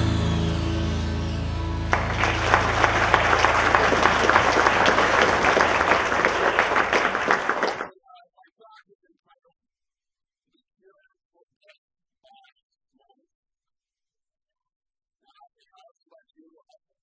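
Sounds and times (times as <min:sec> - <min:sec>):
intro music: 0:00.0 - 0:07.6
audience applauding: 0:00.0 - 0:07.9.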